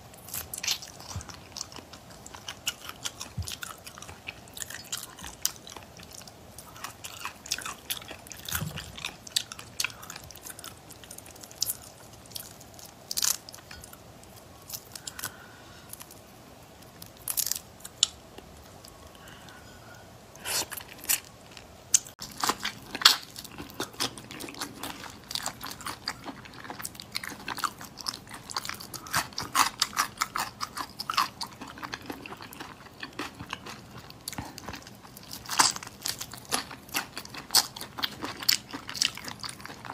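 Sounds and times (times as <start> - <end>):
wet biting and chewing: 21.9 - 39.9.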